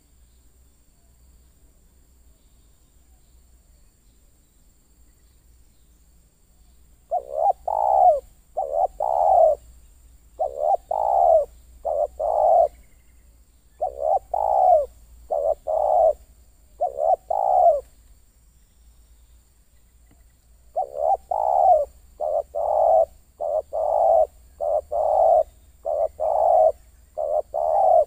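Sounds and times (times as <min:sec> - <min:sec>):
dove cooing: 0:07.1 - 0:09.6, 0:10.4 - 0:12.9, 0:13.8 - 0:17.9, 0:20.7 - 0:28.0.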